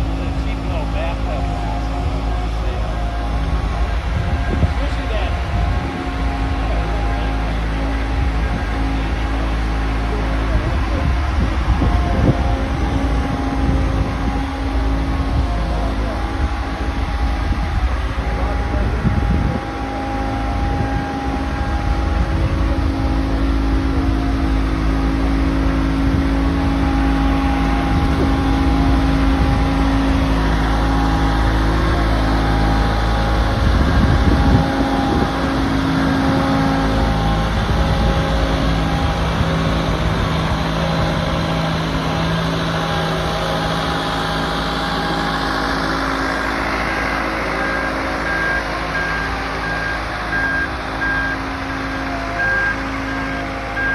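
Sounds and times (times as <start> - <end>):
diesel engine running: 0.0 - 53.9.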